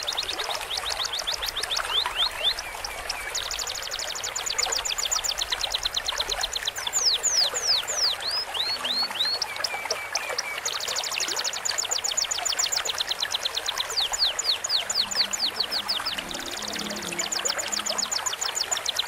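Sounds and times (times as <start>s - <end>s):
cage birds singing: 0.0s - 19.0s
stream trickling: 0.0s - 19.0s.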